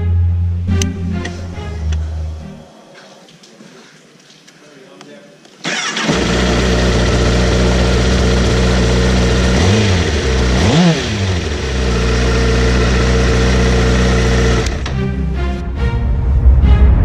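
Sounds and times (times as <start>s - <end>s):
motorcycle engine idling and revving: 5.7s - 15.0s.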